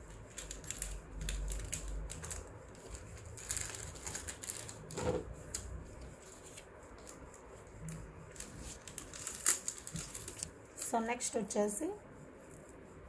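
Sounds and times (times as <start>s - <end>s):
packaging rustling: 0.2s - 5.6s, 7.9s - 10.9s.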